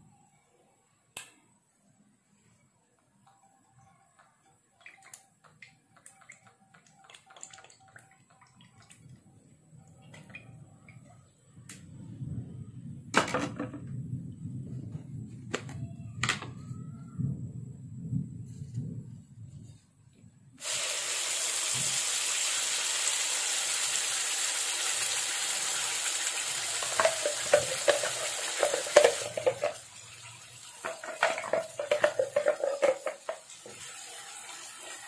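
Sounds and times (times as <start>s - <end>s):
oil pouring into wok: 20.6s - 35.0s.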